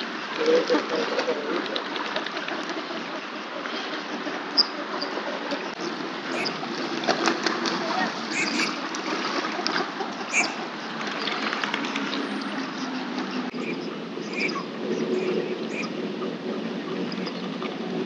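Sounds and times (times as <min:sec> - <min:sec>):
lake water lapping and splashing: 0:00.0 - 0:18.0
short bird calls: 0:08.3 - 0:08.8, 0:10.3 - 0:10.6, 0:13.6 - 0:15.9.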